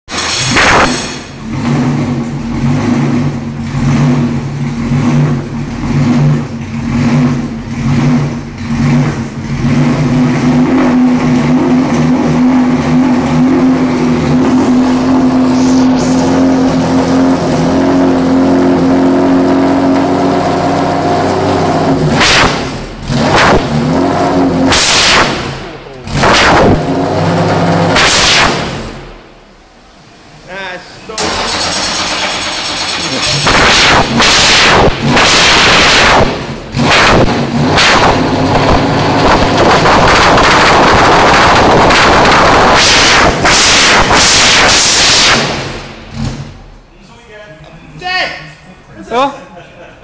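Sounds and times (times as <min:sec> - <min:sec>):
sudden loud engine bursts: 0:00.1 - 0:29.5, 0:30.6 - 0:46.8
racing engine idling loudly: 0:29.8 - 0:36.8.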